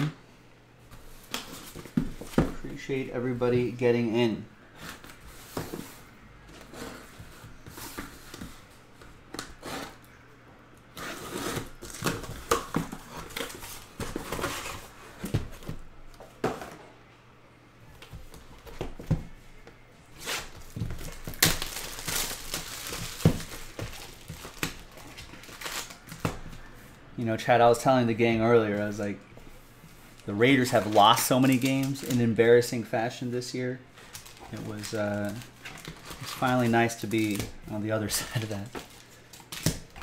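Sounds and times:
packing tape tearing: 0:20.2 - 0:26.3
plastic wrap crinkling: 0:20.4 - 0:26.6, 0:30.2 - 0:32.4, 0:34.0 - 0:40.0.

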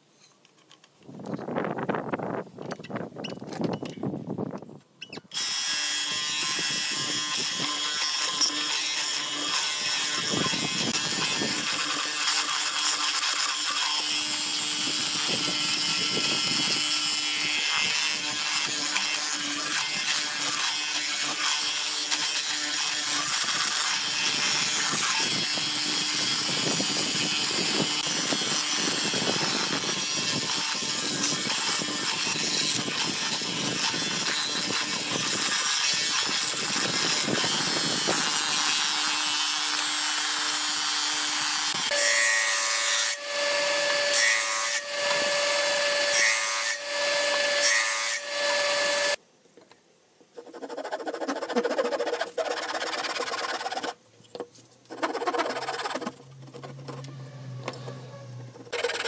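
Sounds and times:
mortiser boring into wood: 0:05.1 - 0:49.2.

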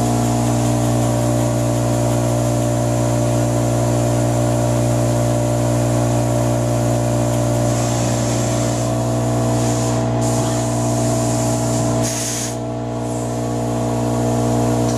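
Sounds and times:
cnc router machine hum: 0:00.0 - 0:14.9
compressed-air hiss: 0:07.6 - 0:13.6.

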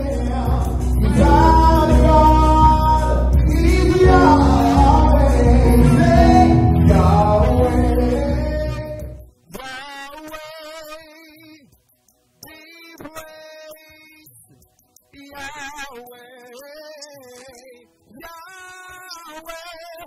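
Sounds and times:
electric bass: 0:00.0 - 0:09.3
man singing long notes: 0:00.0 - 0:11.7
keyboard: 0:00.0 - 0:20.0.

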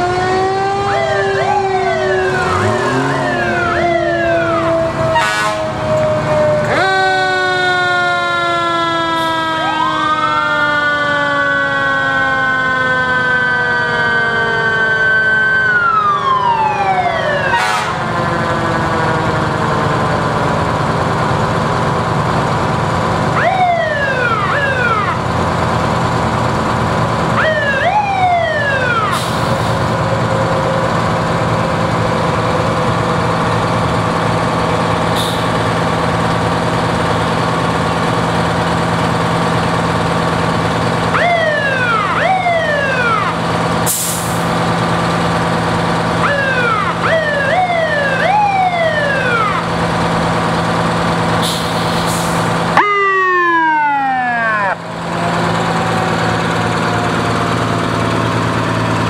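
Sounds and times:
siren whoops: 0:00.0 - 0:20.6, 0:23.3 - 0:25.3, 0:27.4 - 0:32.8, 0:41.1 - 0:43.5, 0:46.1 - 0:49.8, 0:52.4 - 0:59.0
fire truck engines idling: 0:00.0 - 0:59.0
air brakes hissing: 0:29.1 - 0:29.9, 0:35.1 - 0:35.7, 0:43.9 - 0:44.5, 0:51.4 - 0:52.6.

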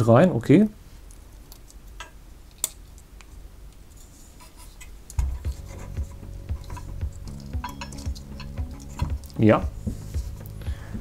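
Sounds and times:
background music: 0:05.2 - 0:11.0.

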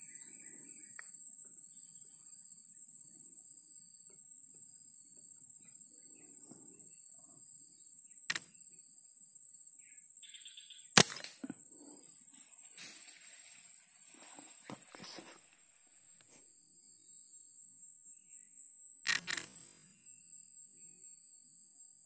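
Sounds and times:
high drone of insects: 0:00.0 - 0:22.0
air rifle shot: 0:11.0 - 0:11.4.

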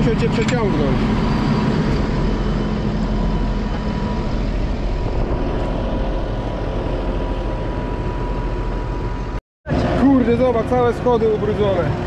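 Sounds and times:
thin steady whine: 0:00.0 - 0:12.0
tractor diesel engine running: 0:00.0 - 0:12.0.

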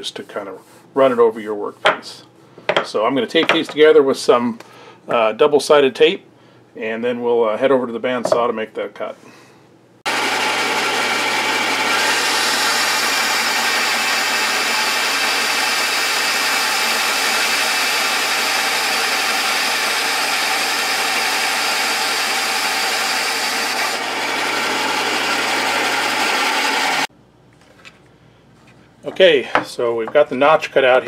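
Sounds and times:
bandsaw cutting wood: 0:10.1 - 0:27.1.

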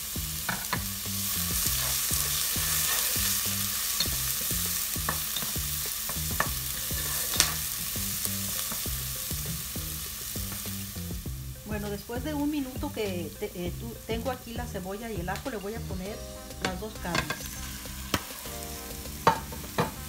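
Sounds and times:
onion sizzling in hot fat: 0:00.0 - 0:20.0
wooden spoon scraping a pot: 0:01.6 - 0:04.4, 0:05.1 - 0:07.7.

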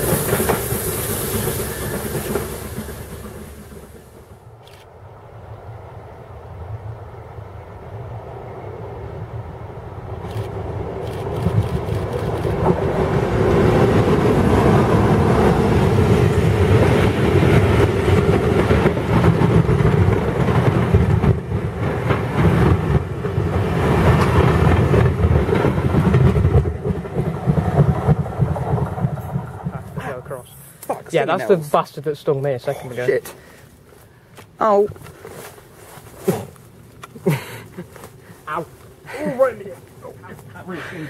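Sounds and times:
train wheels clattering: 0:00.0 - 0:04.5, 0:13.5 - 0:29.9
locomotive engine: 0:00.0 - 0:04.7.

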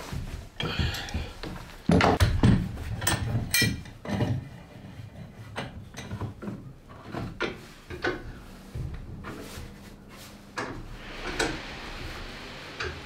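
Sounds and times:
metal clamps clinking: 0:03.0 - 0:04.3.

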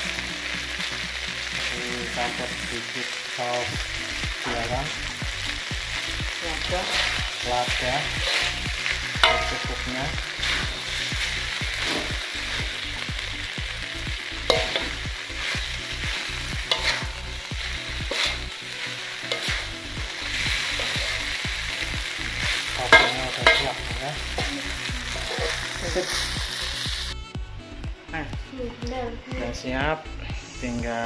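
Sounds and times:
chicken sizzling in oil: 0:00.0 - 0:27.2
metal spatula scraping wok: 0:06.2 - 0:13.1, 0:14.3 - 0:27.1
spatula clinking on pan: 0:09.2 - 0:09.8, 0:22.9 - 0:23.7.

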